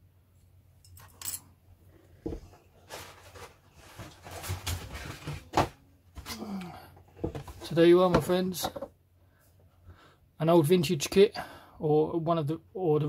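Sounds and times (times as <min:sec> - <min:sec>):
plastic kit and cardboard box handled: 0:02.3 - 0:06.4, 0:07.1 - 0:08.9.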